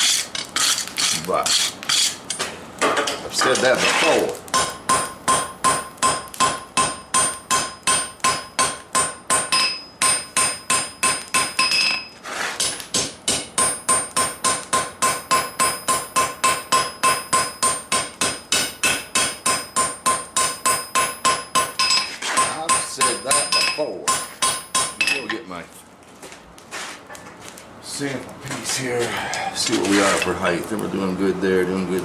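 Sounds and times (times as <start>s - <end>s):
hammer striking steel on anvil: 4.5s - 25.4s.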